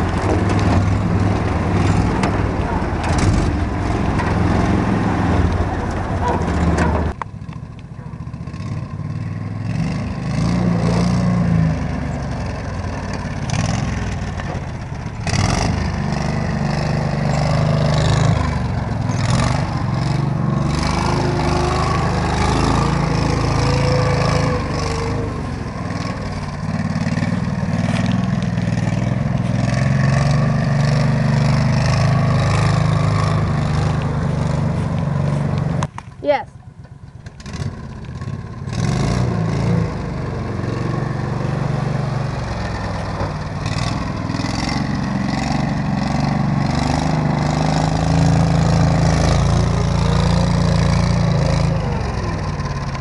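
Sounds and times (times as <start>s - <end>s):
vehicle bump: 0.0s - 8.2s, 13.1s - 15.4s.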